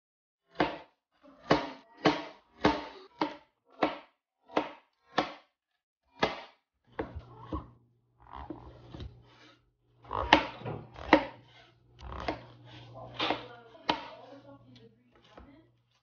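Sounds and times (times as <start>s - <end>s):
knife chopping on plastic board: 0.5s - 7.7s, 8.5s - 9.5s, 10.2s - 16.0s.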